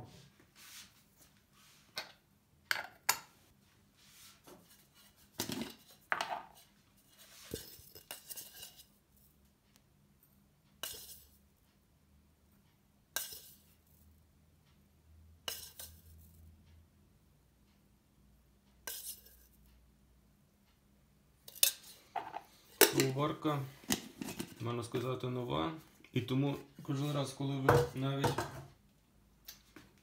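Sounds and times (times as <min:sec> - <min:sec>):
metal spoon scraping and tapping: 0:07.4 - 0:08.9, 0:10.8 - 0:11.4, 0:13.1 - 0:14.0, 0:15.4 - 0:16.5, 0:18.8 - 0:19.6, 0:21.4 - 0:23.2, 0:23.9 - 0:24.6.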